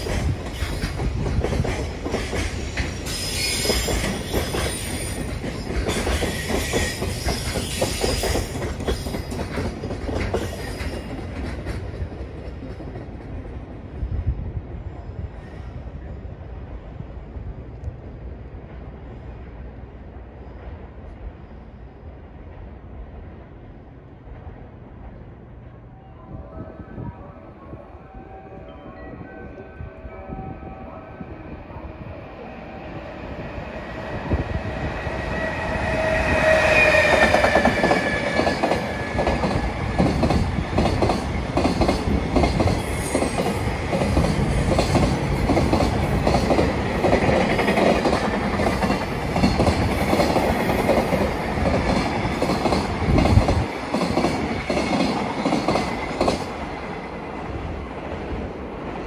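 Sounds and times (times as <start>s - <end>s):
train wheels clickety-clack: 0.0s - 13.7s, 34.3s - 59.0s
electric locomotive whining: 23.2s - 59.0s.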